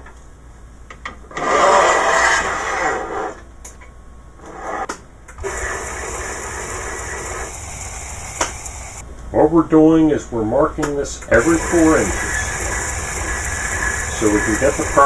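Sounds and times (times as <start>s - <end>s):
steady rushing noise: 5.4s - 9.0s, 11.4s - 15.0s.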